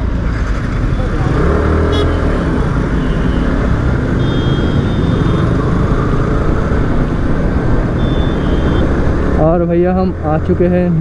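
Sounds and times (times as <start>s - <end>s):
motorcycle engine accelerating: 0.0s - 10.6s.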